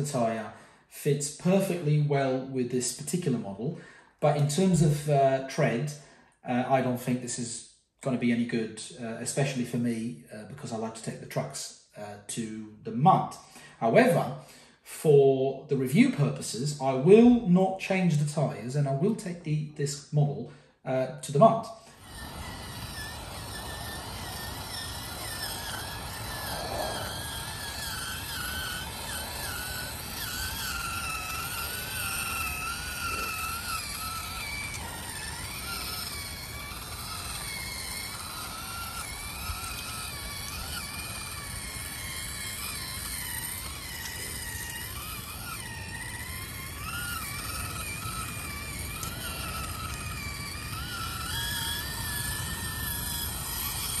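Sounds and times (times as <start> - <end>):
toy car motor whine: 0.0 - 2.1, 2.8 - 6.1, 13.2 - 14.6, 20.7 - 54.0.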